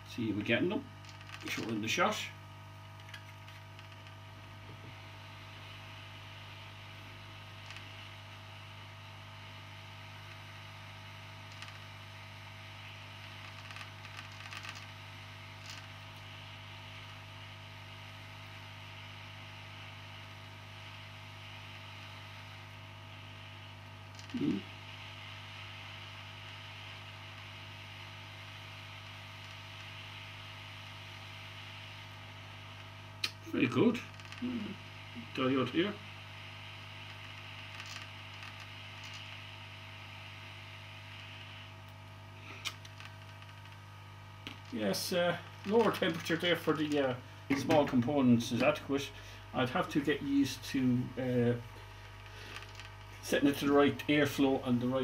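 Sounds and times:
hot air station humming: 0:33.2 - 0:36.0, 0:44.4 - 0:55.0.

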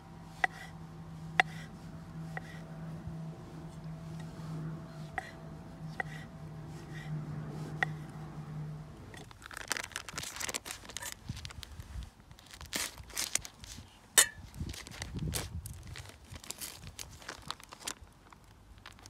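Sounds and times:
plastic packet crinkling and tearing: 0:09.2 - 0:13.9, 0:14.6 - 0:19.0.

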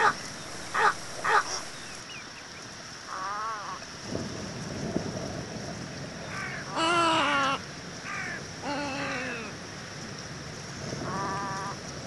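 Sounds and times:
egret croaking calls: 0:00.0 - 0:02.0.

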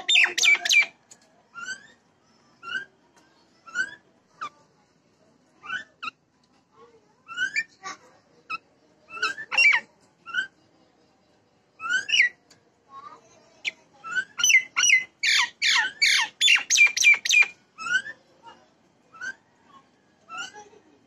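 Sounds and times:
myna calling: 0:00.0 - 0:01.0.

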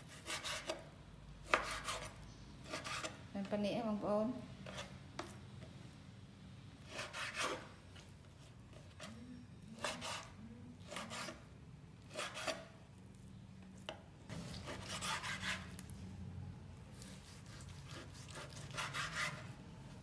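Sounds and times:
knife slicing meat on board: 0:00.1 - 0:03.2, 0:06.9 - 0:08.1, 0:12.1 - 0:12.7, 0:14.3 - 0:15.9, 0:16.9 - 0:19.5
low steady hum: 0:07.8 - 0:20.0.

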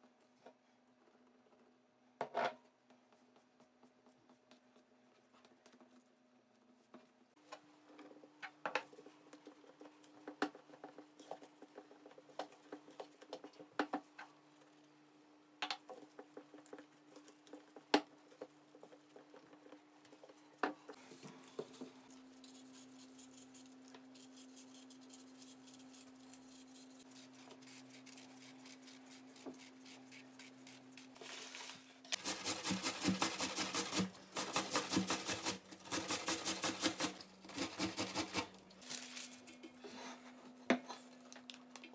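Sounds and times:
apple grated on metal grater: 0:22.4 - 0:39.0.

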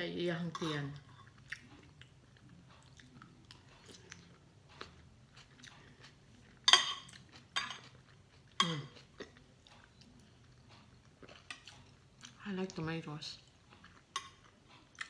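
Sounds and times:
soft chewing: 0:00.3 - 0:15.0
cutlery scraping on ceramic plate: 0:00.5 - 0:01.3, 0:06.6 - 0:08.0.

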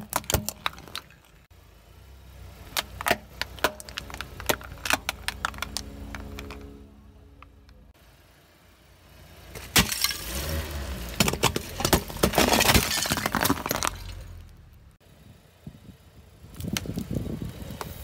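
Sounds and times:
flower pot crushing under tyre: 0:00.0 - 0:01.4, 0:09.6 - 0:10.4, 0:11.1 - 0:14.5.

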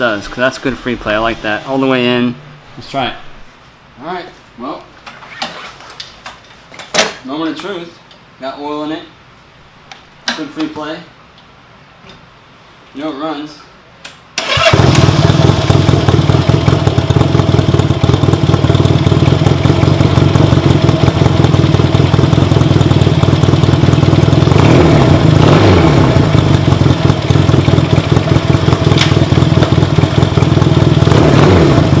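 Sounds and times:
motorcycle engine idling: 0:14.6 - 0:32.0.

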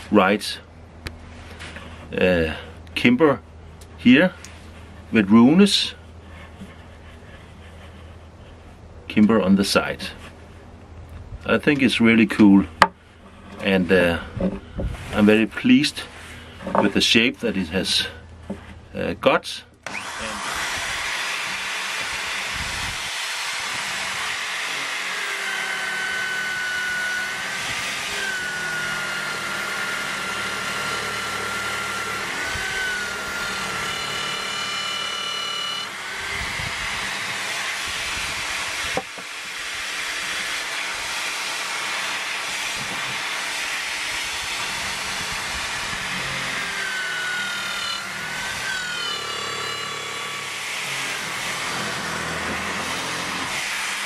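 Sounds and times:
drill press whining: 0:19.8 - 0:54.0.

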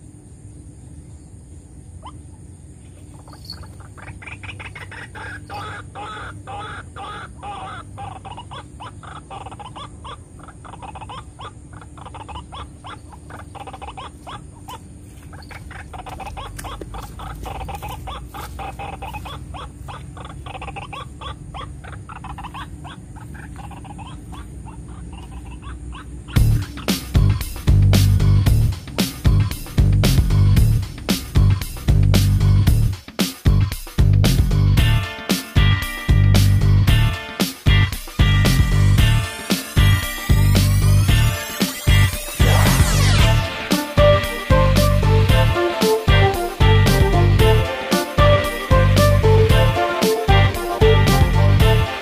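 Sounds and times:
waterhen croaking call: 0:03.1 - 0:26.5.

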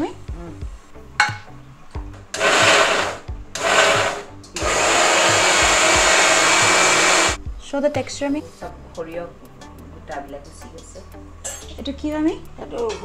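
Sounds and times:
electric mixer grinder running: 0:02.4 - 0:07.4.

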